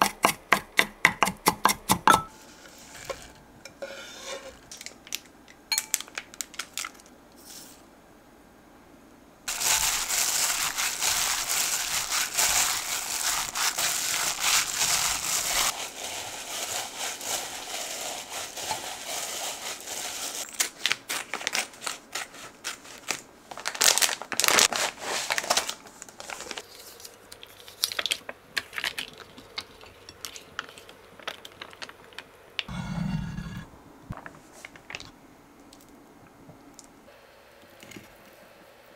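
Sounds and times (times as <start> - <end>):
meat kneaded by hand squishing: 9.5 - 21.2.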